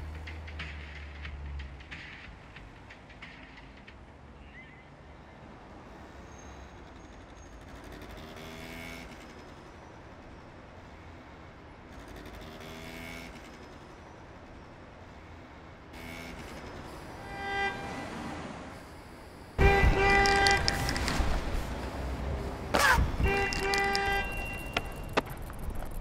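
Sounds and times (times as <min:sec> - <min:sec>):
low traffic rumble: 0:00.0 - 0:26.0
vehicles passing: 0:00.0 - 0:26.0
car horn: 0:17.2 - 0:18.4, 0:19.6 - 0:21.2, 0:22.8 - 0:25.2.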